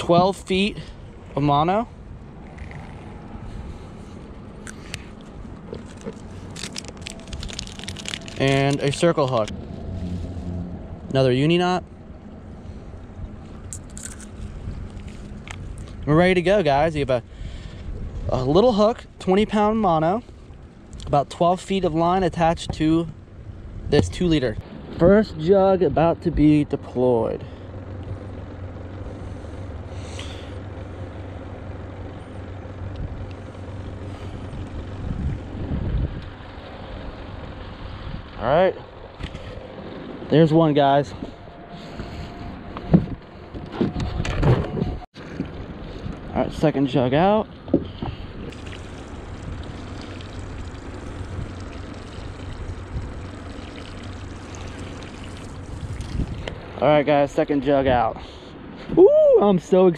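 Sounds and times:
low motor hum: 0:00.0 - 0:59.5
pouring trickling water: 0:48.5 - 0:56.5.

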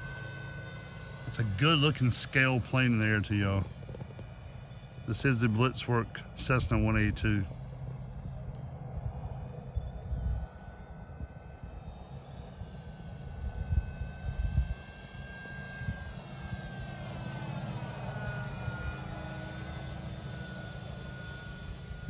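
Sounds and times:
model plane motor whine: 0:00.0 - 0:22.0
wind buffeting microphone: 0:08.9 - 0:16.8.

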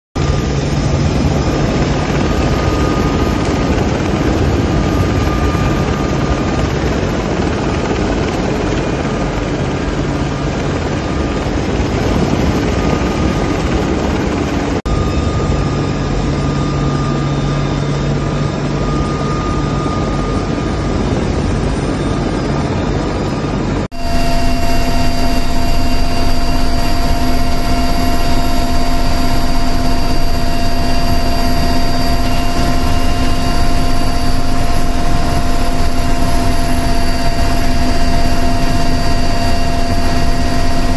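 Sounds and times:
aircraft engine and rotor drone: 0:00.2 - 0:40.9
steady whining tones: 0:00.2 - 0:40.9.

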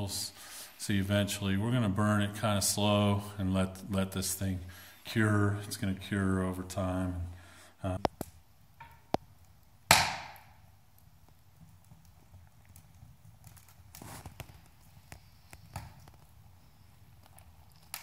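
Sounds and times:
wood fire crackling: 0:00.0 - 0:18.0
loud sharp crack: 0:09.9 - 0:10.6.

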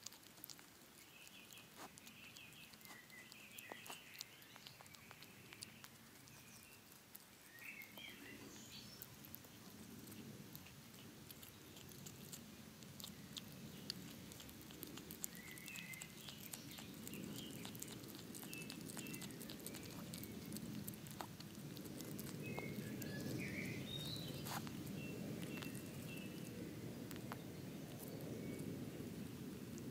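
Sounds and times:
hedgehog chewing and smacking: 0:00.0 - 0:29.9
birds chirping: 0:00.9 - 0:29.2.

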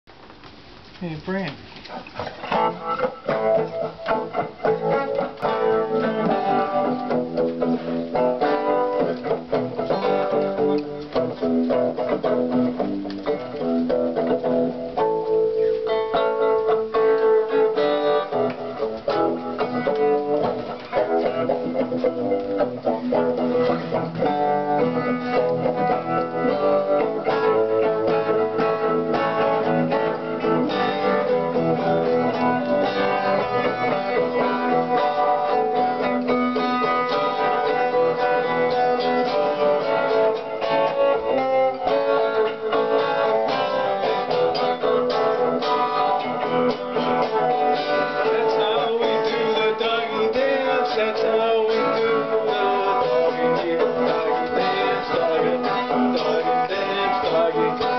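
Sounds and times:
electric guitar playing: 0:01.8 - 0:57.9.

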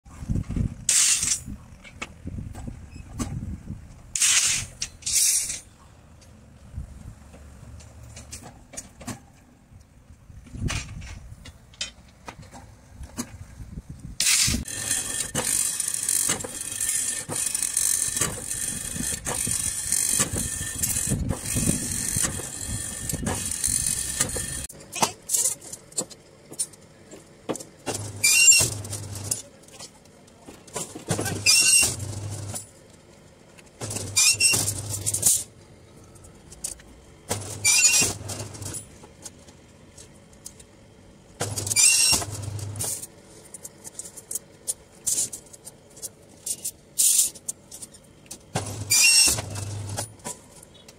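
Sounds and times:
bending machine motor whining: 0:14.7 - 0:24.7.

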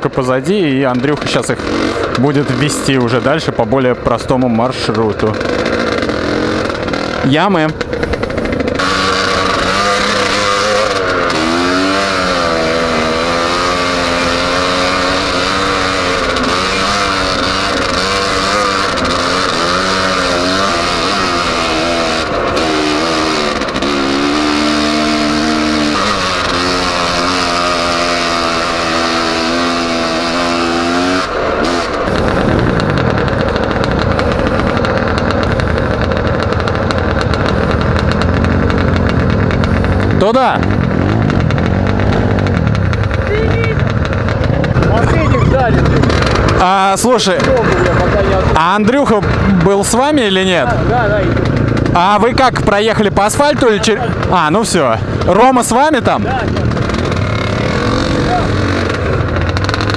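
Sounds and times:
off-road motorcycle engine revving: 0:00.0 - 0:59.9
other motorcycles running: 0:00.0 - 0:59.9.

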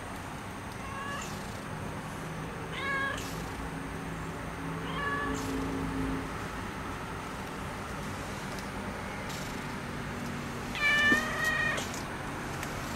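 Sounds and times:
cat meowing: 0:00.8 - 0:01.4, 0:02.7 - 0:03.2, 0:04.8 - 0:05.6, 0:10.7 - 0:12.0.

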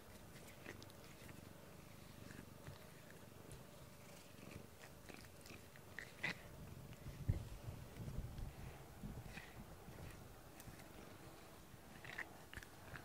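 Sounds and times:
cat purring: 0:00.0 - 0:13.0.

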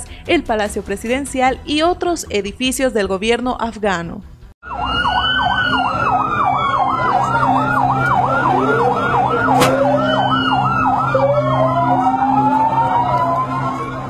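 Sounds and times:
siren yelping: 0:04.6 - 0:14.0
sirens wailing: 0:04.6 - 0:14.0.

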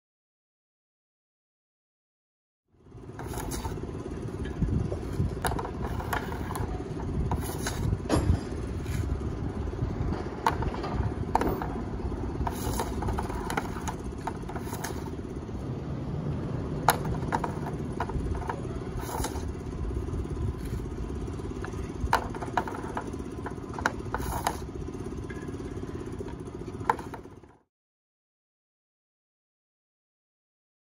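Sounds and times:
low background rumble: 0:02.8 - 0:27.6
hockey stick and puck clacking: 0:05.4 - 0:09.1, 0:10.3 - 0:15.2, 0:16.8 - 0:19.6, 0:21.6 - 0:24.7, 0:26.3 - 0:27.6.

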